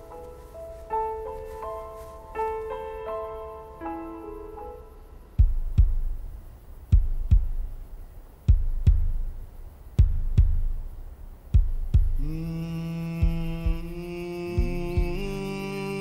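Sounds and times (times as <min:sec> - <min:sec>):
soft piano phrase: 0:00.0 - 0:06.0
heartbeat thumps: 0:05.3 - 0:15.6.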